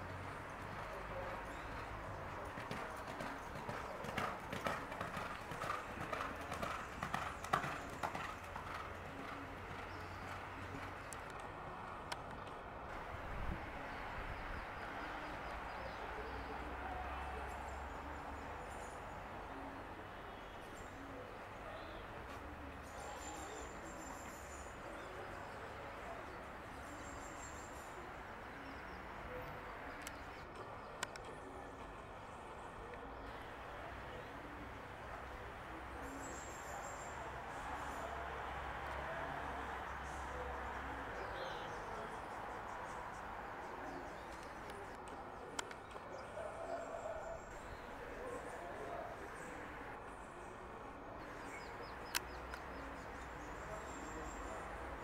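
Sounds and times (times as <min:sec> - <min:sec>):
outdoor background noise: 0:00.0 - 0:55.0
horse hooves on dirt: 0:00.5 - 0:12.6.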